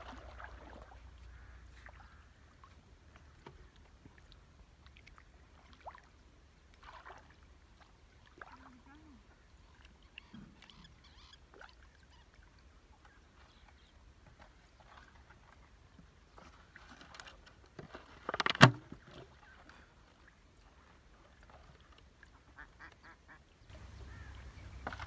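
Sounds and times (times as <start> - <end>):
splash in shallow water: 0.0 - 2.3, 4.9 - 9.0
waterfowl calling: 0.7 - 3.7, 8.5 - 12.4, 22.2 - 25.0.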